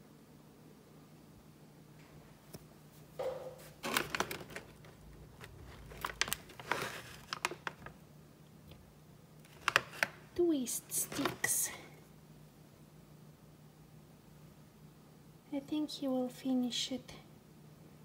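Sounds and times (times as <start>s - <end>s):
plastic pouch crinkling: 3.8s - 8.0s, 9.4s - 10.3s, 10.9s - 11.6s.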